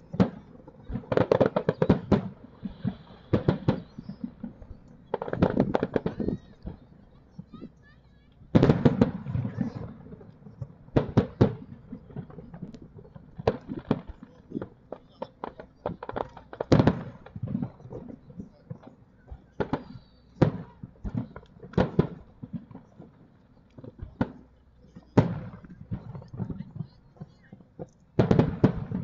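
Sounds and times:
firework shells bursting: 0.0s - 6.9s.

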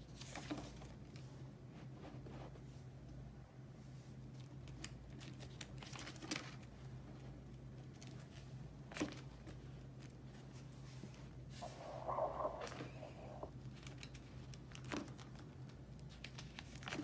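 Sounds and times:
plastic sleeve pages crinkling: 4.7s - 6.7s.

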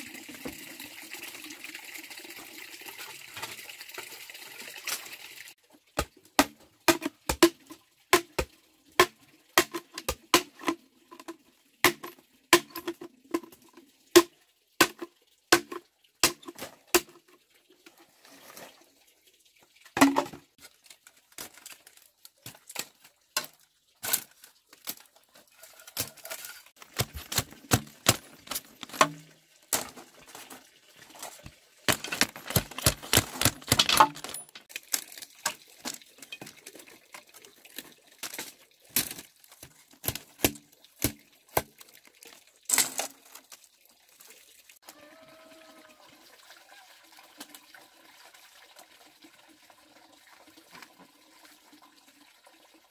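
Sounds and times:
machete chopping bamboo: 6.0s - 7.6s, 8.2s - 10.8s, 11.8s - 12.9s, 14.2s - 17.2s, 26.8s - 29.9s, 31.9s - 34.4s.

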